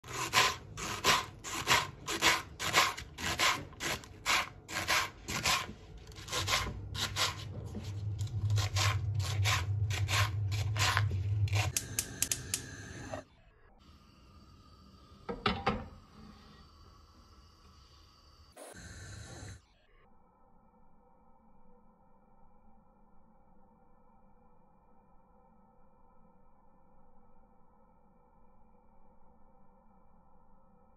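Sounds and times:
knife slicing onto cutting board: 0:00.1 - 0:11.8
steady low hum: 0:00.1 - 0:13.2.

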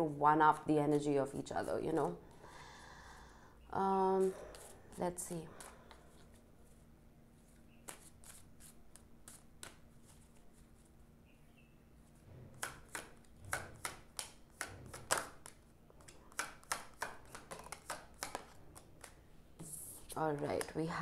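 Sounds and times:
cards being shuffled: 0:07.4 - 0:11.0, 0:12.0 - 0:19.2.

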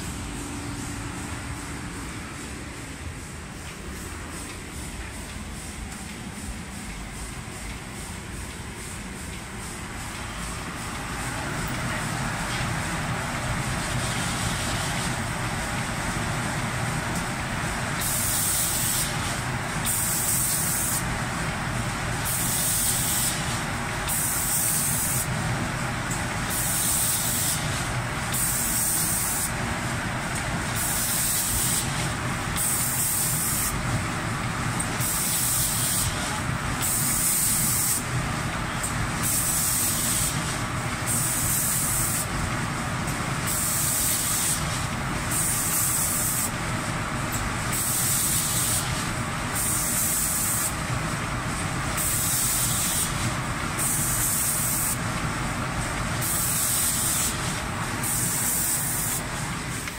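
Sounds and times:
spray guns hissing in bursts: 0:00.0 - 0:59.9
steady mechanical hum: 0:00.0 - 0:59.9.

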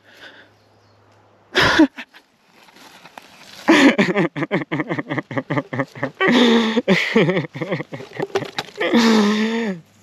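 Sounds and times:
man laughing: 0:01.6 - 0:02.2, 0:03.7 - 0:09.8.

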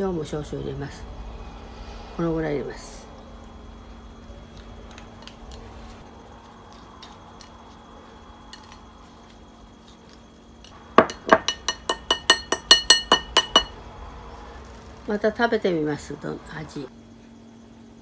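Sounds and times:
plastic spoon clinking ceramic bowl: 0:11.0 - 0:13.7.

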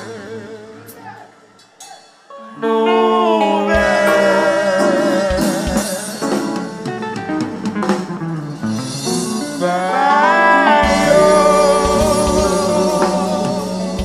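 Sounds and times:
group singing: 0:02.6 - 0:06.6, 0:09.6 - 0:14.0
dance band playing: 0:03.7 - 0:14.0.

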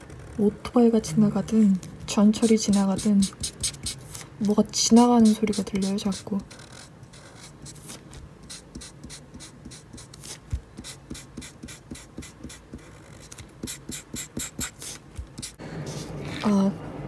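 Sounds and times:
marker scratching on paper: 0:02.3 - 0:16.6.

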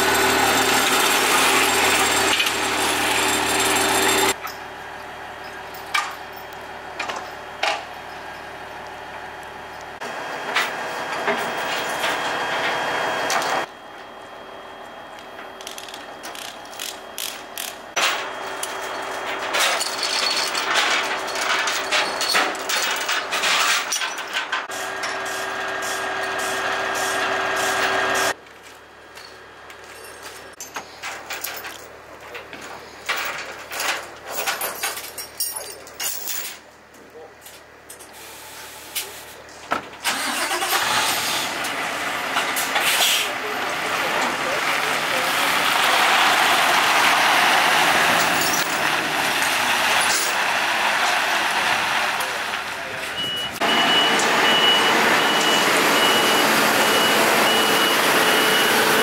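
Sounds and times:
engine hum: 0:00.0 - 0:32.2, 0:39.4 - 0:59.0
steel tracks clanking and rattling: 0:10.4 - 0:13.7, 0:15.4 - 0:28.3, 0:39.7 - 0:59.0.

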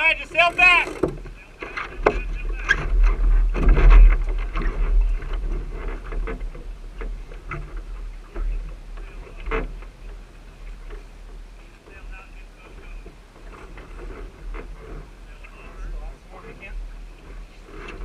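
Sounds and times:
boat fittings knocking and rattling: 0:00.0 - 0:02.2.

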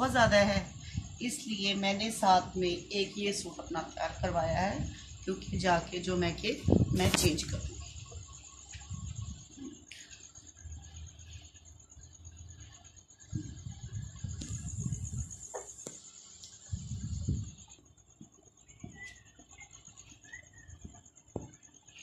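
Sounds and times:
faint high whine: 0:00.0 - 0:22.0
fabric rustling on microphone: 0:06.7 - 0:07.7.

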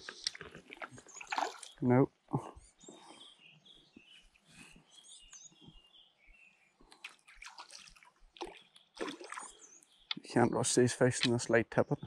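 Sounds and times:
soft water splashes: 0:00.0 - 0:01.9, 0:06.8 - 0:09.7
faint birdsong chirping: 0:00.0 - 0:12.0.

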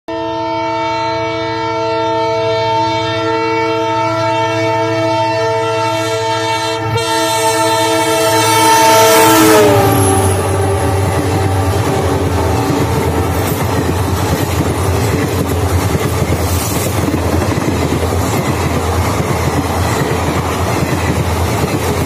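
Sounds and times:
train horn long blast: 0:00.1 - 0:13.4
train rumble: 0:06.2 - 0:22.0.

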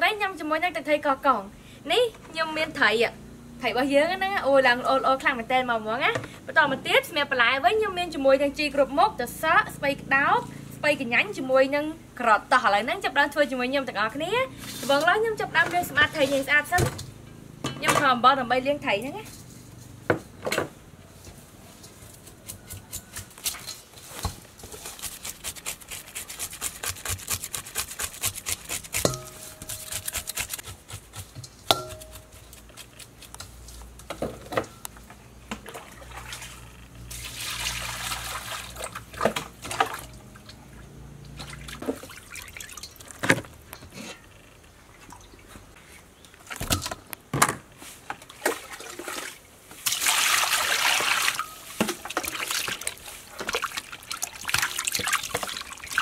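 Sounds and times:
rush of splashing water: 0:37.1 - 0:40.1, 0:48.4 - 0:56.0.

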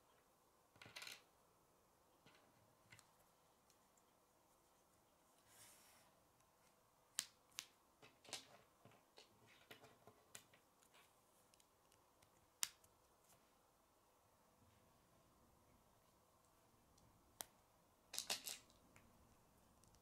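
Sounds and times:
plastic pieces clicking together: 0:18.1 - 0:18.8.

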